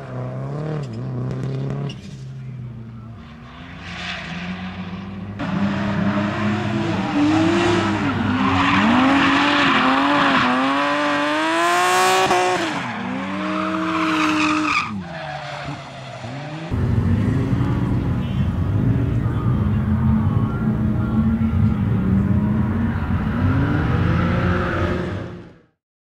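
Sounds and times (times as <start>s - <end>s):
tyres squealing and skidding: 3.2s - 11.2s, 11.8s - 16.8s, 22.7s - 25.4s
car engine revving: 3.3s - 25.7s.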